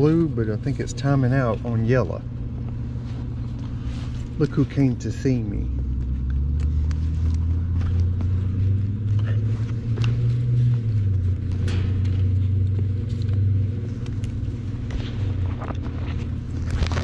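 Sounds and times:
heat pump electric hum: 0.0 - 17.0
hands handling wire connectors: 6.0 - 17.0.

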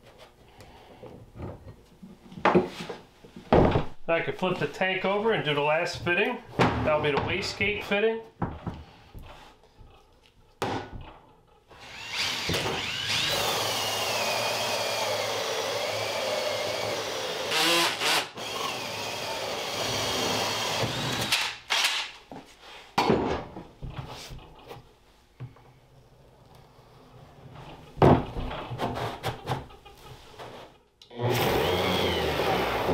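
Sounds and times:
cordless drill whining under load: 11.8 - 22.1, 31.2 - 32.9.

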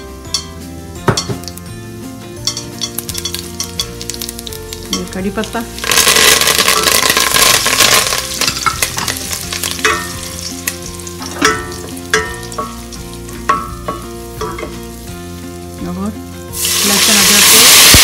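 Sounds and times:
spices sizzling in hot oil: 0.0 - 18.0.

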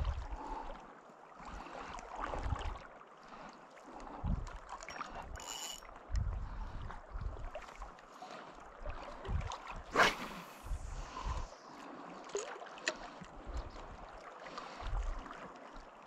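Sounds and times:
wind buffeting microphone: 0.0 - 0.3, 4.1 - 5.4, 6.0 - 7.6, 9.2 - 11.6.

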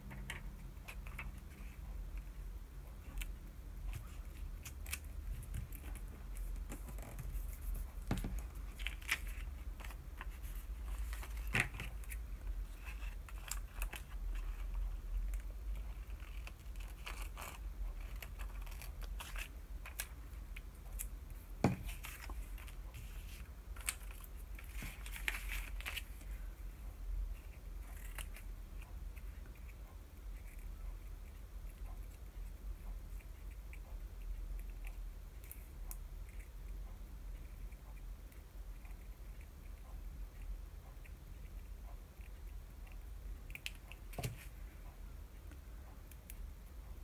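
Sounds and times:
paper rustling and crinkling: 3.9 - 12.2, 21.6 - 26.3.

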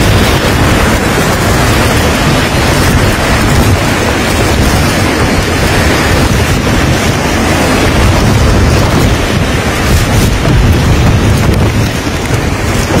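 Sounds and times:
storm wind buffeting microphone: 0.0 - 13.0.

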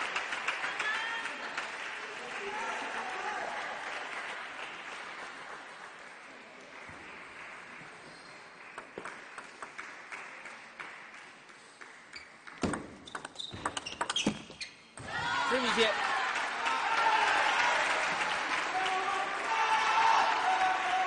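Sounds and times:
crowd applause: 0.0 - 11.4, 15.1 - 21.0
table tennis ball clicking: 12.6 - 14.5.

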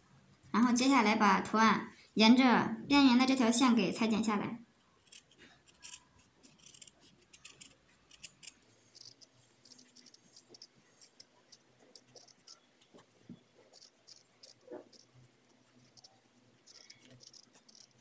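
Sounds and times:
scissors snipping felt: 15.8 - 18.0.

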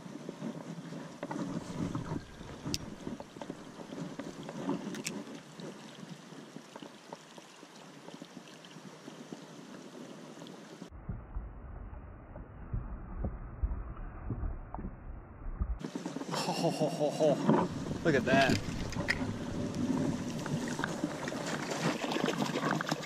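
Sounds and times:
stream water running: 0.0 - 10.9, 15.8 - 23.0
fishing reel handling noise: 2.0 - 3.0, 4.8 - 5.2, 18.2 - 19.8.

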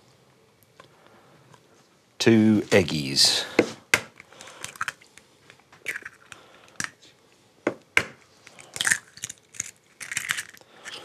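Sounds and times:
eggshells cracking: 4.0 - 7.0, 8.0 - 11.0.

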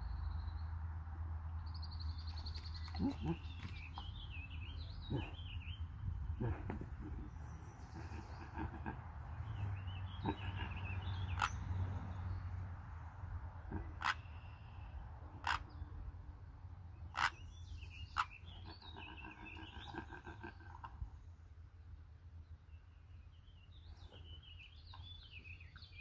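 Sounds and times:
songbirds chirping: 0.0 - 26.0
steady low rumble: 2.0 - 12.3.

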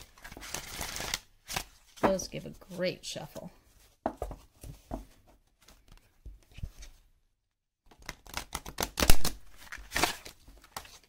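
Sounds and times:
card slaps and riffling: 7.9 - 11.0
cards being shuffled: 7.9 - 11.0.

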